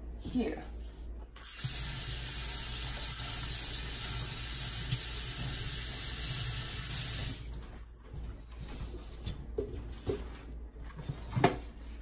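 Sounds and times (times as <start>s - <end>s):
faucet running into steel sink: 1.4s - 7.6s.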